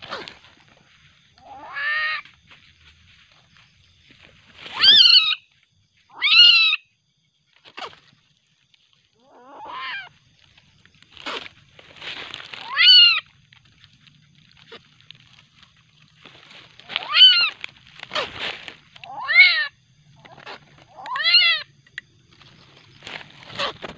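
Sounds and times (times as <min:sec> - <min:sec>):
civet crying: 0:01.4 - 0:02.3, 0:04.7 - 0:05.5, 0:06.1 - 0:06.8, 0:12.5 - 0:13.3, 0:16.8 - 0:18.3, 0:19.0 - 0:21.8.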